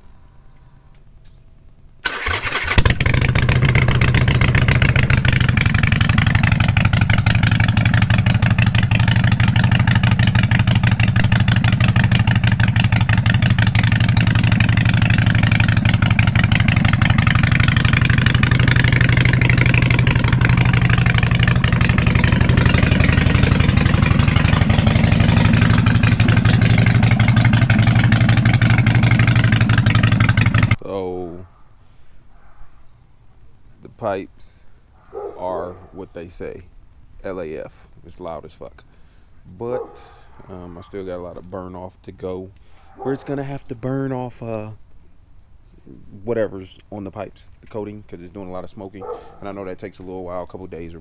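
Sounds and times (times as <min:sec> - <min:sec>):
motorcycle engine starting and idling: 0:02.0 - 0:30.8.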